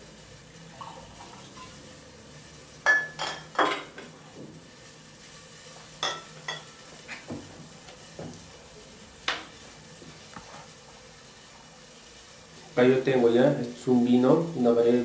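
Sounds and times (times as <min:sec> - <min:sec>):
pot of broth hissing: 0:00.0 - 0:15.0
kitchenware clinking: 0:02.8 - 0:04.1, 0:06.0 - 0:06.8.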